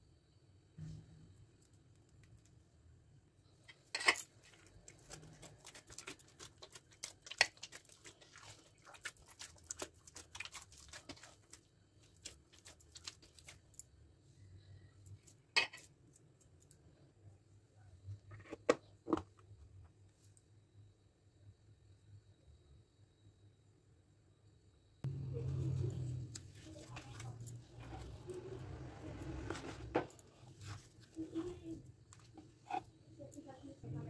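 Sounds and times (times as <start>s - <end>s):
hands kneading dough: 4.3s - 14.0s, 25.1s - 33.8s.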